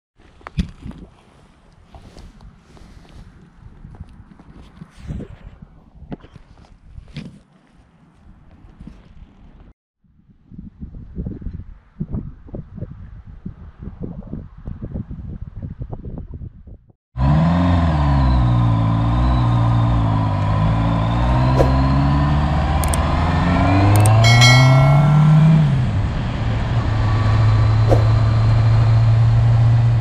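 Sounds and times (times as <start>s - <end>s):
wind buffeting microphone: 10.3s - 16.8s
motorcycle engine revving: 17.2s - 30.0s
sharp clicks: 22.8s - 23.0s, 23.9s - 24.2s
short ringing chime: 24.0s - 25.7s.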